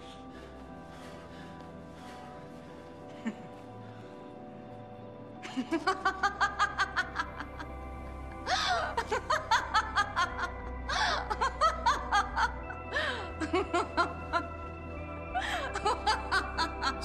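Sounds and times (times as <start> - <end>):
music with sustained tones: 0.0 - 17.0
woman laughing: 5.4 - 7.7, 8.5 - 14.6, 15.4 - 17.0.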